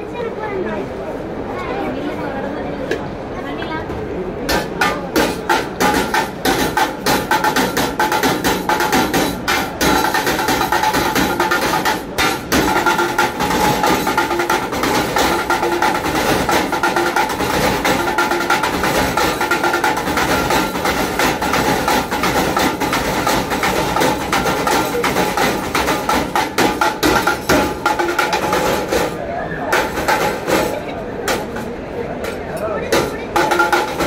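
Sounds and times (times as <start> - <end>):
music: 4.5 - 29.2, 29.8 - 30.7, 33.0 - 34.0
spoon drumming on steel pans: 4.5 - 30.7, 33.0 - 34.0.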